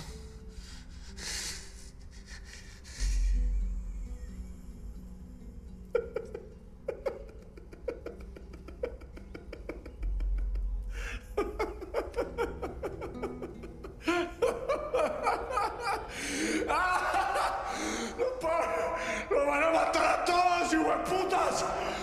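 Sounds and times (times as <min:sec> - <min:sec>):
man laughing: 0:05.9 - 0:20.1.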